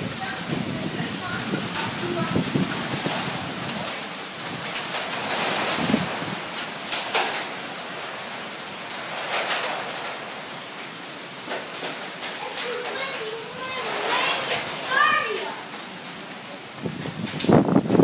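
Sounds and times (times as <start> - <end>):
heavy rain pouring on pavement: 0.0 - 18.0.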